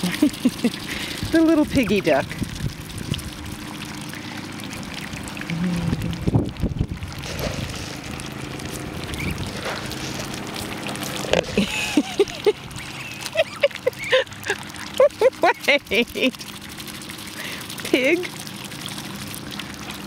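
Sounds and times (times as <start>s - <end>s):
ducks nibbling seeds: 7.0s - 17.8s.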